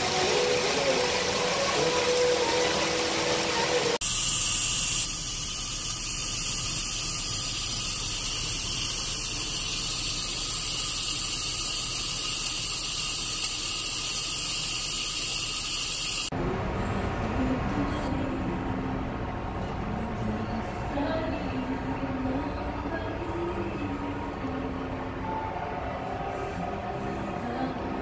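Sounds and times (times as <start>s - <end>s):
coffee machine hissing: 0.0s - 16.3s.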